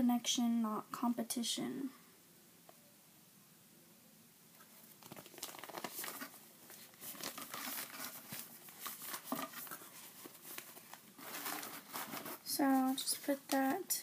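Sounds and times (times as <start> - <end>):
plastic bag crinkling: 4.8 - 14.0.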